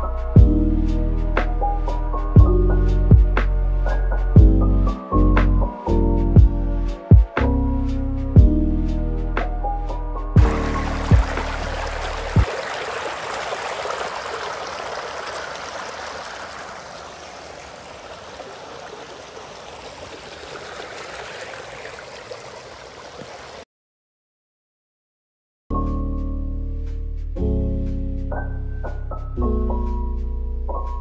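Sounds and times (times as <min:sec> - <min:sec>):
background music: 0:00.0 - 0:12.5
rushing water: 0:10.4 - 0:23.7.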